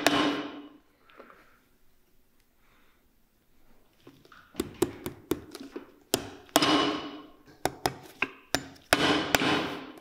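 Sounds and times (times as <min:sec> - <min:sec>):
hammer striking nails: 0:00.0 - 0:00.6, 0:04.6 - 0:10.0.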